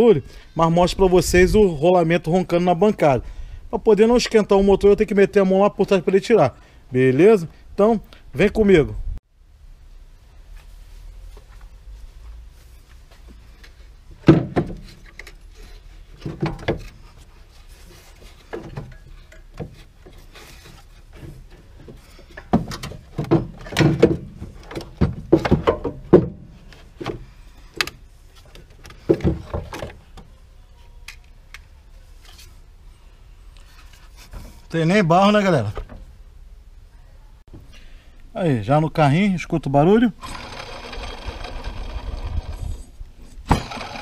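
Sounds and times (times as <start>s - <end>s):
metal tools clunking and rattling: 18.3s - 26.5s.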